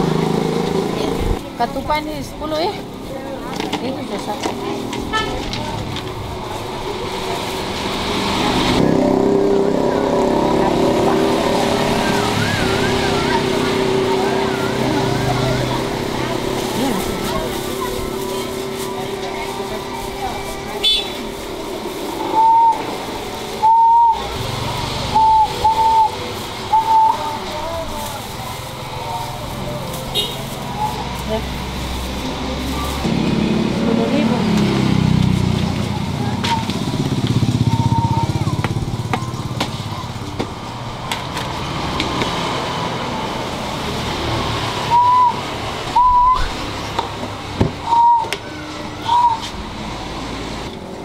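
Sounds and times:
market background noise: 0.0 - 51.0
motorbike engine running: 32.4 - 42.3
short whistled notes: 44.9 - 45.4, 46.0 - 46.5, 47.8 - 48.3.

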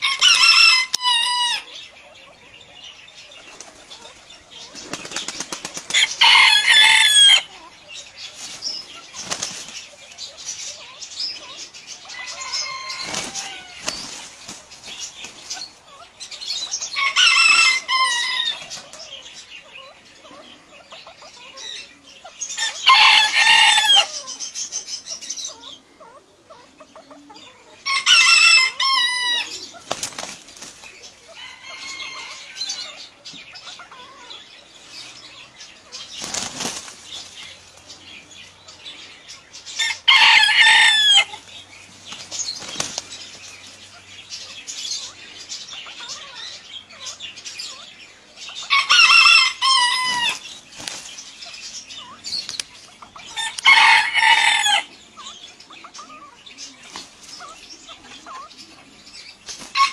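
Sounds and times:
rooster crowing: 0.0 - 1.7, 6.0 - 7.6, 12.1 - 13.8, 17.0 - 18.6, 22.6 - 24.2, 27.8 - 29.6, 31.4 - 32.9, 39.8 - 41.4, 48.7 - 50.4, 53.4 - 54.9
wing flapping and scuffling: 3.4 - 7.1, 8.2 - 10.4, 12.2 - 16.0, 29.5 - 31.2, 35.9 - 38.0, 41.2 - 44.0, 50.0 - 54.4, 56.8 - 58.4, 59.3 - 59.9.

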